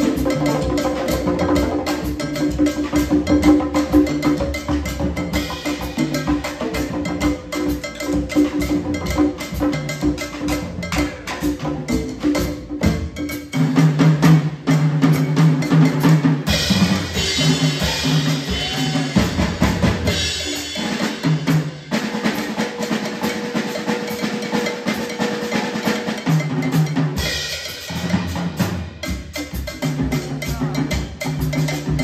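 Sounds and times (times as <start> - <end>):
wood block: 0.0 - 14.4
congas: 0.0 - 32.0
drum kit: 0.0 - 32.0.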